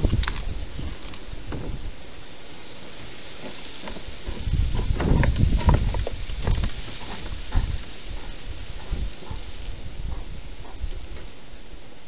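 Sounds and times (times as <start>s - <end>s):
hedgehog snuffling: 6.9s - 11.3s.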